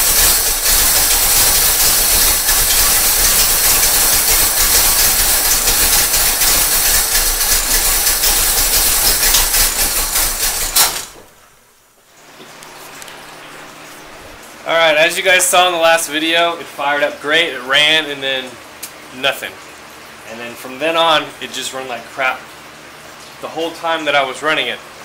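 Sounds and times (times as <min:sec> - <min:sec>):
car engine running roughly: 0:00.0 - 0:11.2
engine stopping with click: 0:00.0 - 0:11.2.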